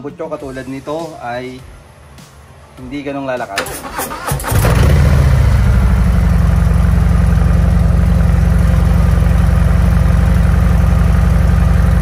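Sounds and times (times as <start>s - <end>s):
motorcycle engine idling: 4.8s - 12.0s.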